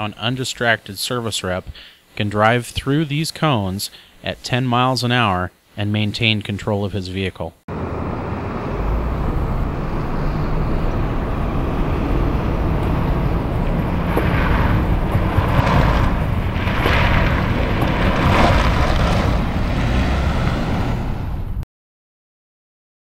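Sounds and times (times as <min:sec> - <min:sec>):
van engine and tyre noise: 0:07.7 - 0:21.6
wind rumble on microphone: 0:08.1 - 0:21.6.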